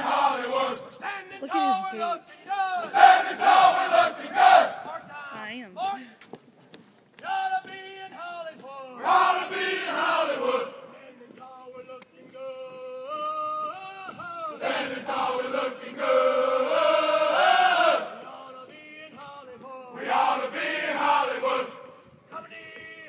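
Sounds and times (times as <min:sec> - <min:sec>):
group chanting in unison: 0:00.0 - 0:05.0, 0:09.0 - 0:11.1, 0:14.5 - 0:19.2, 0:19.9 - 0:21.9
lead voice chanting: 0:00.0 - 0:05.5.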